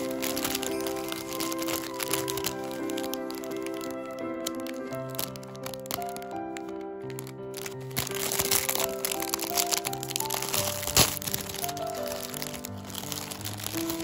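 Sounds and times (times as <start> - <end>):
background music: 0.0 - 14.0
plastic wrapper crinkling and tearing: 0.0 - 14.0
sharp crack: 0.0 - 14.0.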